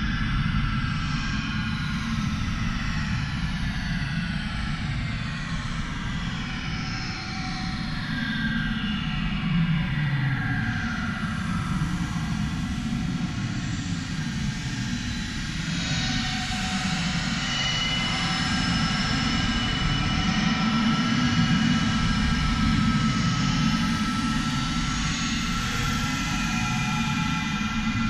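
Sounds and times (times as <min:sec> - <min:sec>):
low drone: 0:09.4 - 0:28.0.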